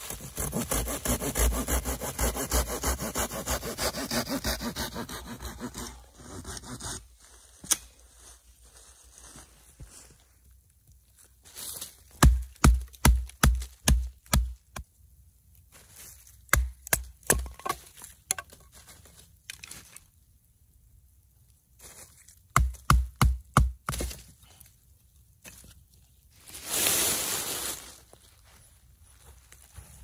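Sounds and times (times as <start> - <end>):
wood splitting: 0.0 - 7.0, 12.2 - 14.8, 16.5 - 18.6, 22.5 - 24.3.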